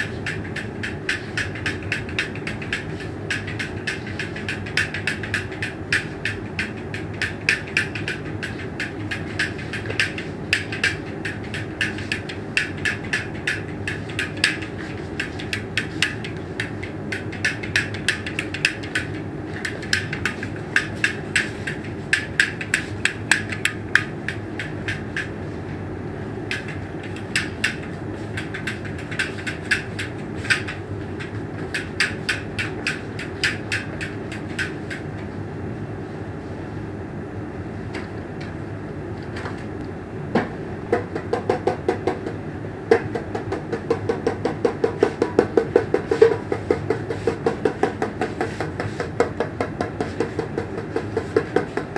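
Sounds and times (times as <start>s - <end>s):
rapid sharp clicks: 0.0s - 25.3s
steady low hum: 0.0s - 51.9s.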